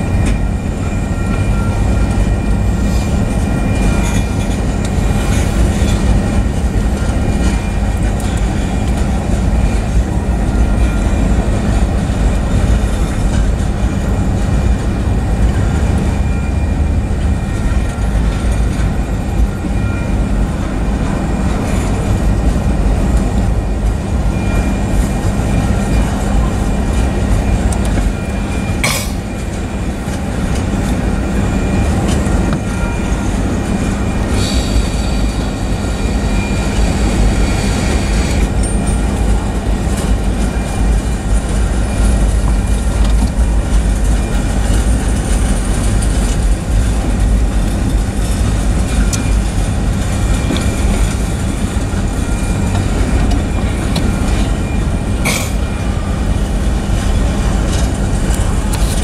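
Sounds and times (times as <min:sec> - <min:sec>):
freight train wheels rumbling: 0:00.0 - 0:59.0
sharp metal clanks: 0:28.8 - 0:29.2.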